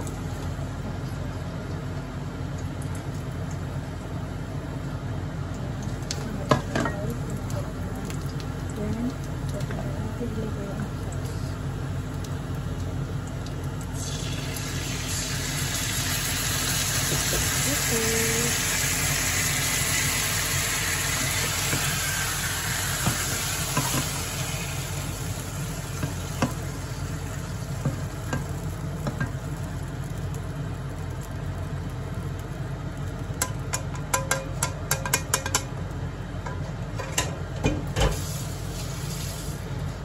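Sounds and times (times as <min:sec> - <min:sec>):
meat sizzling in frying pan: 0:08.4 - 0:34.9, 0:37.8 - 0:40.0
spatula knocking on pan: 0:33.4 - 0:35.7.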